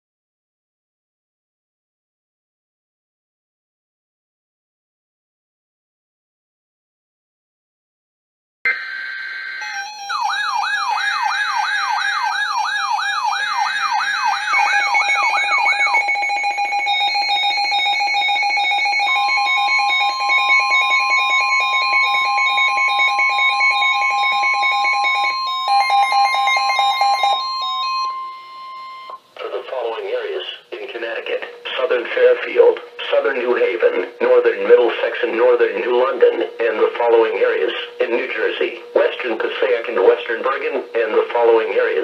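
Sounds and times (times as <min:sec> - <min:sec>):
warbling siren sweep: 0:08.7 - 0:29.1
steady single alarm tone: 0:08.7 - 0:29.2
rapid electronic beeping: 0:09.6 - 0:29.2.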